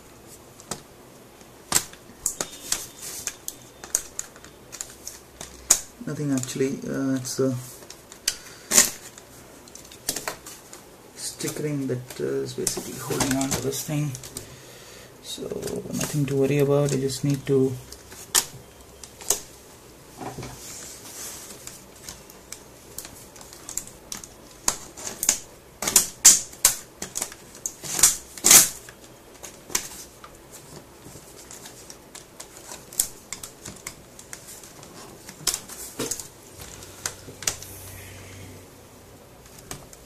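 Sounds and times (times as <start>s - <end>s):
plastic laptop case snapping: 1.7s - 5.9s, 21.6s - 30.1s.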